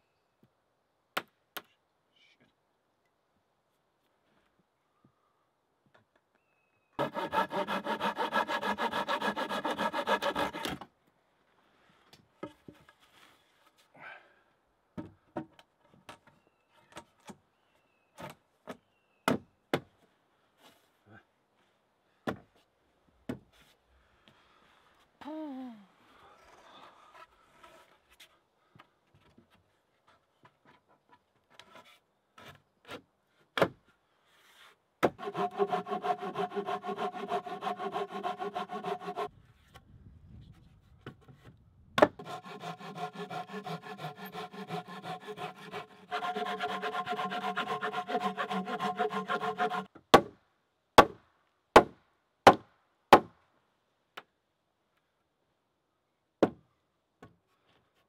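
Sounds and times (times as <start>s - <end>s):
wood-on-wood grating: 7.0s - 10.9s, 34.4s - 39.3s, 42.1s - 49.9s.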